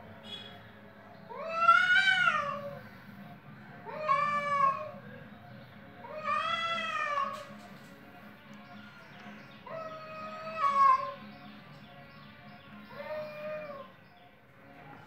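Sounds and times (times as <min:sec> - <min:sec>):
cat yowling: 0:01.3 - 0:02.8, 0:03.8 - 0:05.0, 0:06.0 - 0:07.5, 0:09.6 - 0:11.2, 0:12.9 - 0:13.9.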